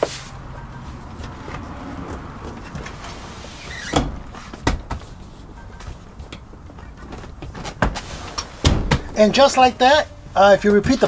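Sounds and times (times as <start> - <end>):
car seat back clunking: 3.7 - 5.1, 6.3 - 9.2.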